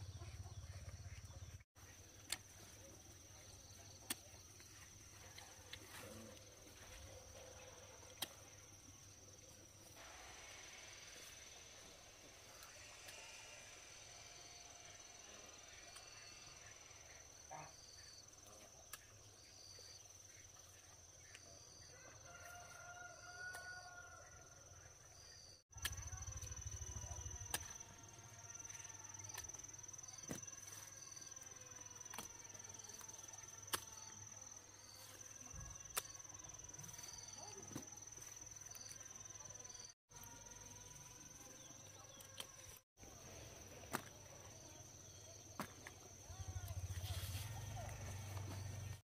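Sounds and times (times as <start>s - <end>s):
chirps and light clicks: 2.2s - 2.6s, 35.9s - 36.2s, 41.9s - 42.8s.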